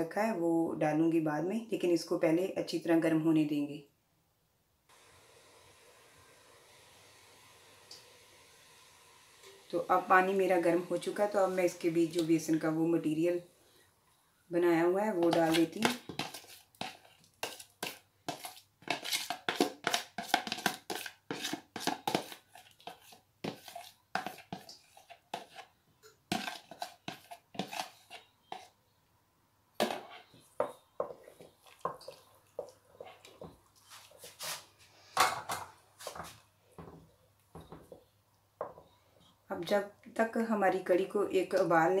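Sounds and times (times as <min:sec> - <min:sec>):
spoon scraping and tapping containers: 0:15.2 - 0:28.8, 0:29.8 - 0:37.0.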